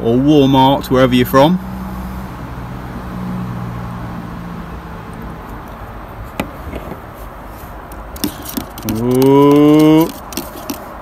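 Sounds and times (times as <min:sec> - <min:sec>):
vehicle engine hum: 0:00.0 - 0:11.0
outdoor background hiss: 0:04.0 - 0:11.0.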